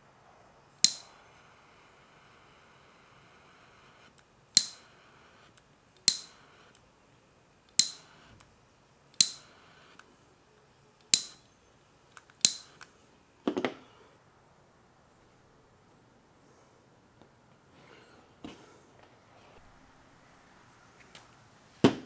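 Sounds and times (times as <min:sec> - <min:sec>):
crimping tool clicks: 0:00.8 - 0:01.1, 0:04.5 - 0:04.8, 0:06.0 - 0:06.3, 0:07.7 - 0:08.1, 0:09.2 - 0:09.5, 0:11.1 - 0:11.4, 0:12.1 - 0:12.9.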